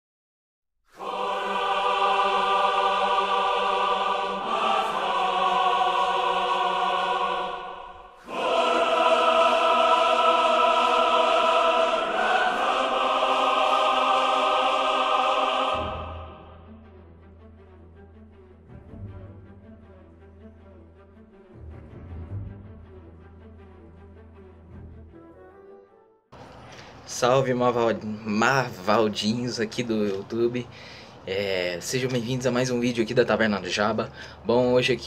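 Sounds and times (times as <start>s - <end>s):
choir singing sustained chords: 0.9s - 25.0s.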